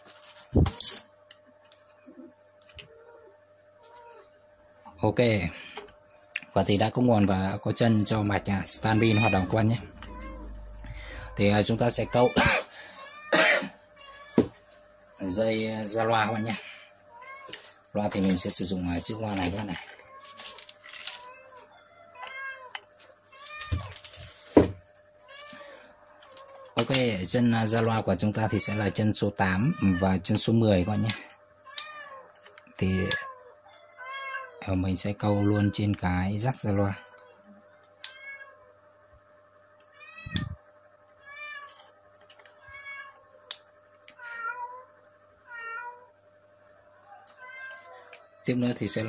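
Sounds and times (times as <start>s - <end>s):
animal crying: 2.8s - 4.3s, 7.4s - 14.5s, 25.2s - 26.8s, 28.0s - 35.9s, 47.0s - 48.5s
cat meowing: 8.8s - 10.6s, 29.6s - 30.2s, 33.0s - 34.7s, 38.0s - 38.6s, 42.6s - 43.2s, 44.2s - 44.9s, 45.5s - 46.1s, 47.2s - 48.2s.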